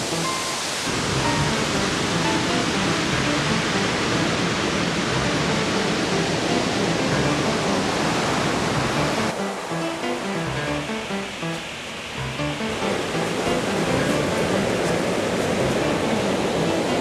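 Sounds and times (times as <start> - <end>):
ocean surf breaking: 0.0 - 17.0
electronic music: 1.0 - 4.1, 5.1 - 7.8, 8.8 - 11.6, 12.2 - 14.5.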